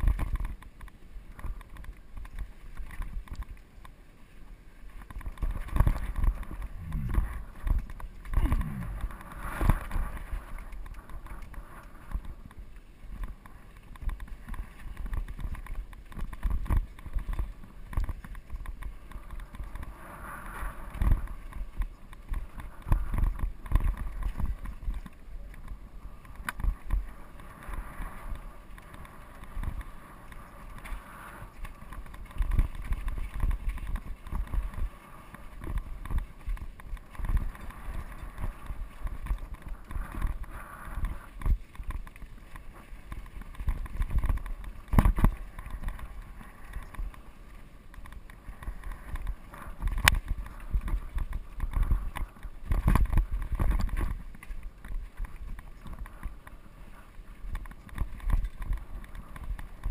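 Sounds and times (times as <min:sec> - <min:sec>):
bike rattling over bumps: 0:00.0 - 0:04.0, 0:04.8 - 0:59.9
wind rumbling on microphone: 0:00.0 - 0:59.9
tyres crunching over dirt: 0:05.0 - 0:19.8.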